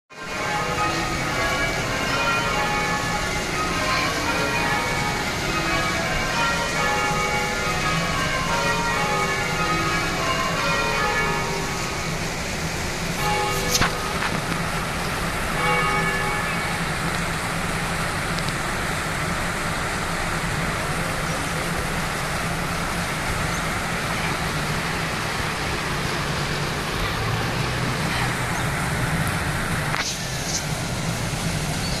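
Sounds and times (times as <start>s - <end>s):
tower bell ringing: 0.1s - 18.3s.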